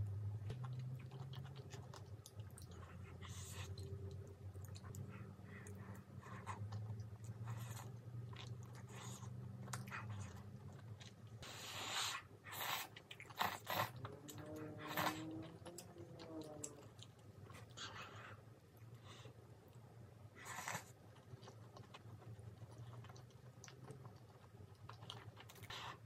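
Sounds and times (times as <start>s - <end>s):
chewing: 0.5s - 26.0s
noodles slurp: 11.3s - 15.5s.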